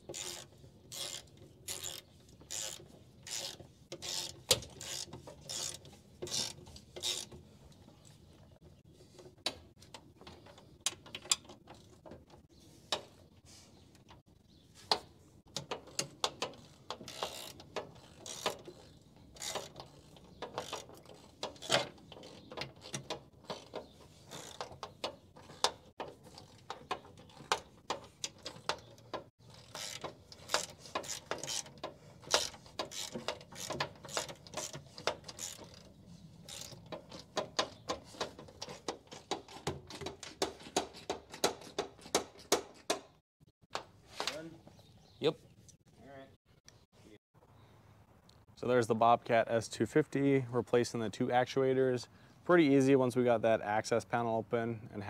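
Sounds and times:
ratchet wrench clicking: 0.1s - 7.3s, 15.5s - 27.6s, 29.5s - 35.9s, 36.5s - 39.3s.

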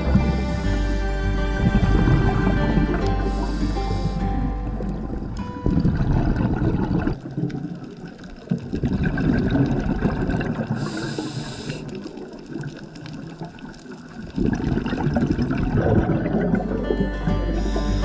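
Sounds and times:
underwater exhaled bubbles gurgling: 1.6s - 18.0s
diver inhalation hiss: 3.1s - 4.5s, 10.8s - 12.1s, 17.5s - 18.0s.

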